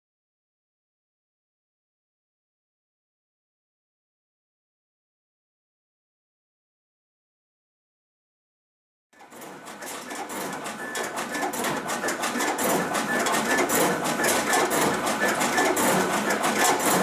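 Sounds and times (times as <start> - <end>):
machine whirring and clattering: 9.2 - 17.0
rapid clicking of sheets feeding: 9.2 - 17.0.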